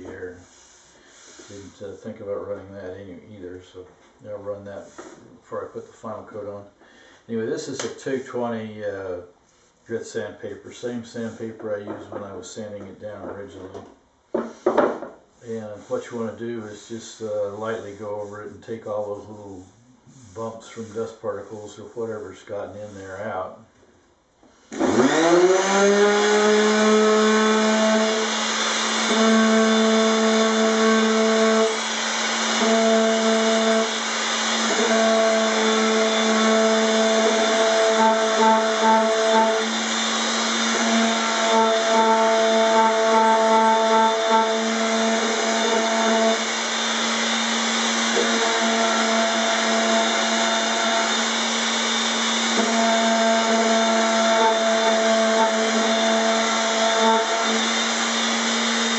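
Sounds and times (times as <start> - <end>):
electric palm sander humming: 24.8 - 58.9.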